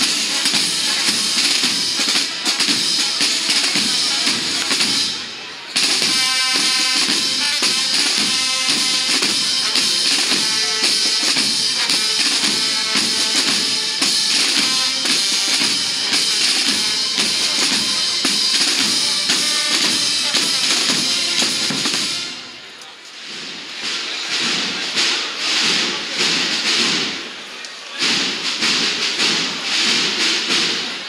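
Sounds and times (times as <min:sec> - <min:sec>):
crowd noise: 0:00.0 - 0:31.0
marching band playing: 0:00.0 - 0:31.0.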